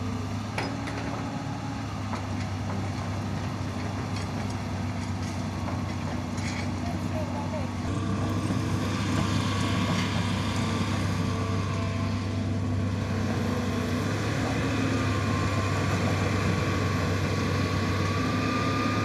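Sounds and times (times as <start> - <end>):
excavator diesel engine running: 0.0 - 19.0.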